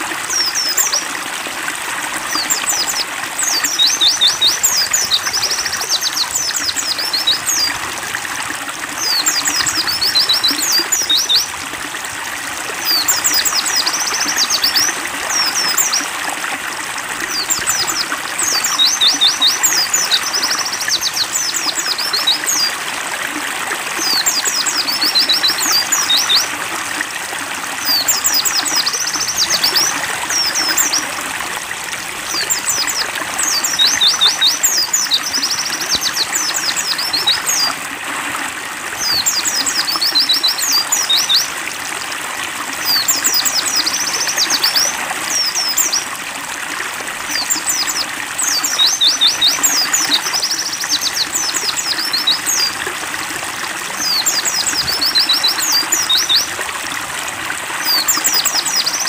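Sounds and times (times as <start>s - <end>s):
stream rushing and trickling: 0.0s - 59.0s
bird high chirping song: 2.3s - 7.8s, 9.0s - 11.6s, 12.8s - 16.1s, 17.3s - 22.8s, 24.0s - 26.6s, 27.8s - 31.2s, 32.3s - 37.8s, 39.0s - 41.5s, 42.8s - 46.1s, 47.3s - 52.8s, 54.0s - 56.6s, 57.8s - 59.0s.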